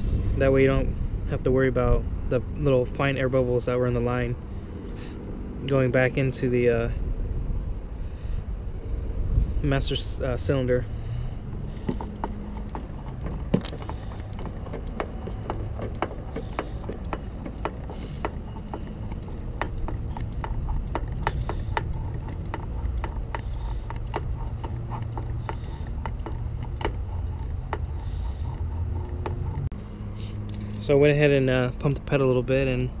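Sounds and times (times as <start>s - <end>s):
low steady rumble: 0.0s - 33.0s
hand vacuum pump clicking: 11.5s - 29.7s.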